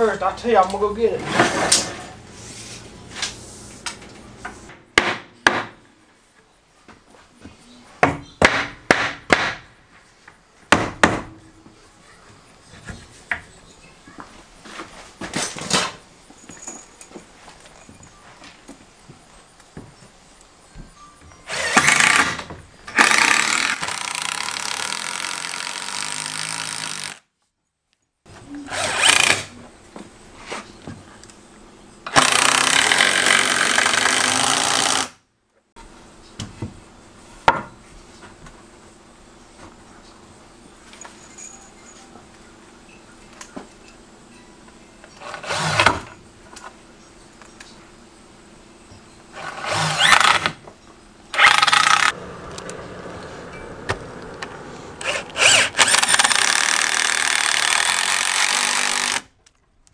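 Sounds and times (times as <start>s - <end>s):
hammer striking wood: 5.0s - 5.8s, 8.0s - 9.7s, 10.7s - 11.4s
cordless driver driving screw into wood: 21.5s - 27.2s, 32.1s - 35.2s, 49.4s - 50.6s, 51.4s - 52.2s, 55.0s - 59.3s.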